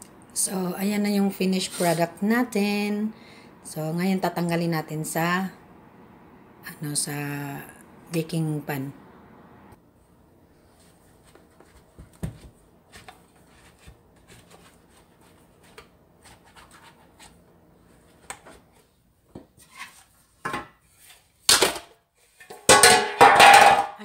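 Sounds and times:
spatula scraping metal pan: 0:01.6 - 0:02.1, 0:19.6 - 0:20.1.

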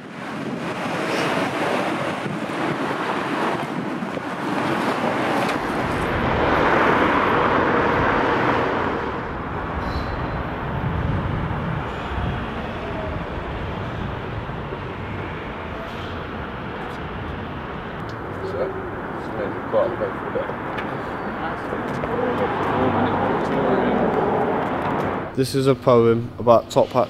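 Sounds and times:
passing cars: 0:00.0 - 0:26.2.

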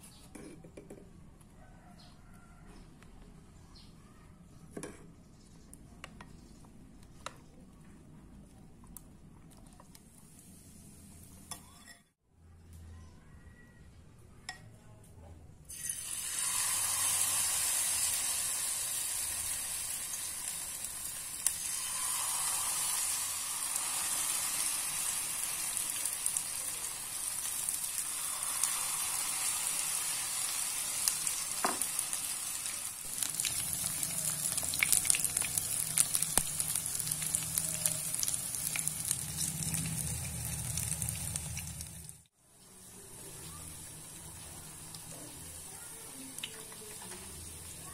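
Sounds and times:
egg sizzling in hot oil: 0:15.7 - 0:47.8.

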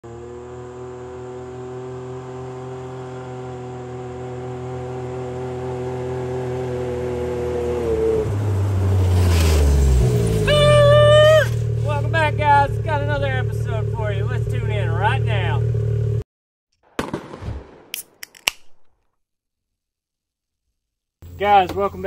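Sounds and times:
vehicle engine running: 0:00.0 - 0:16.2.

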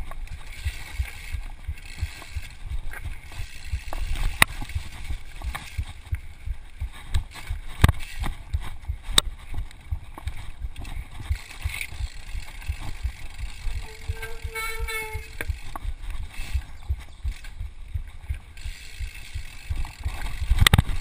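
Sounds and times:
mountain bike rattling over trail: 0:00.0 - 0:21.0
high-pitched tone: 0:13.8 - 0:15.4.

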